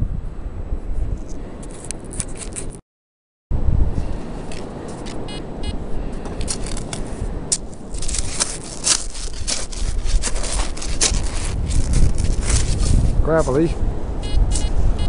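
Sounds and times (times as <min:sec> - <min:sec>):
wind buffeting microphone: 0:00.0 - 0:02.1, 0:03.5 - 0:15.0
trowel scraping gravelly sand: 0:06.4 - 0:13.7
short buzzy beeps: 0:14.2 - 0:15.0.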